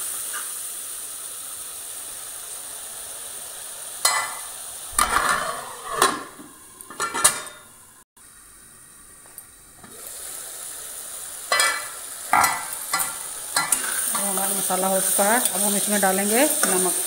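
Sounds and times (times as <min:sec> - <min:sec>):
sauce sizzling in a pan: 0:00.0 - 0:06.9, 0:07.7 - 0:17.0
metal spoon and lid clanking: 0:04.0 - 0:07.7, 0:11.5 - 0:14.4.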